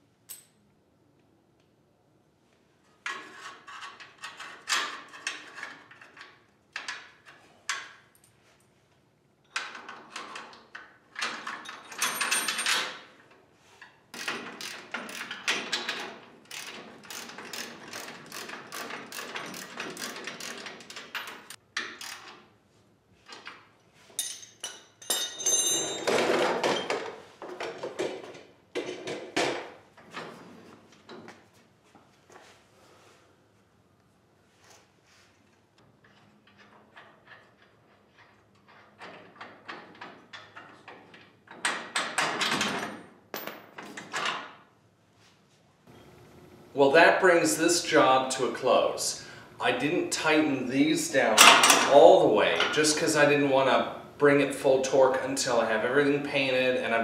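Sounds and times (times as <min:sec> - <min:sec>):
metal clanks scrapes and rattles: 0:03.0 - 0:06.3
ringing metal clank: 0:24.2 - 0:26.2.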